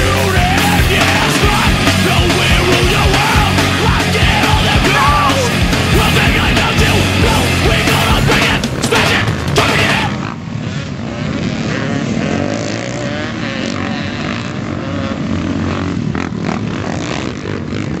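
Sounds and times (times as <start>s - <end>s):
music: 0.0s - 10.2s
quads and dirt bikes racing: 0.0s - 18.0s.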